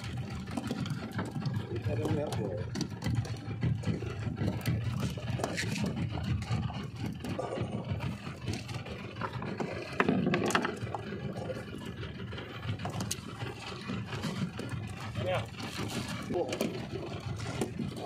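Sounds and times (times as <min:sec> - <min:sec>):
boat engine running low: 0:00.0 - 0:18.0
fishing tackle rattling and clicking: 0:00.0 - 0:18.0.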